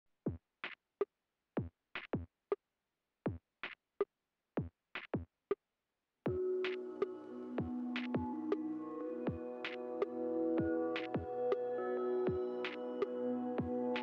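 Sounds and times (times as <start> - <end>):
electronic drum beat: 6.3 - 8.6, 9.3 - 12.8, 13.6 - 14.0
sustained synth chords: 6.3 - 14.0.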